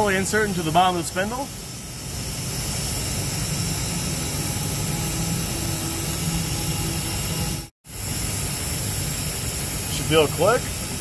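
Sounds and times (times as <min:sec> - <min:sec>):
low hum: 0:01.8 - 0:07.7.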